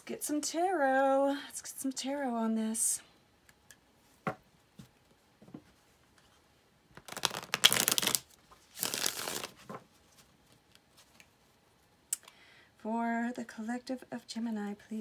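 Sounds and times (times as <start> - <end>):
cards shuffling flutter: 7.0 - 9.8.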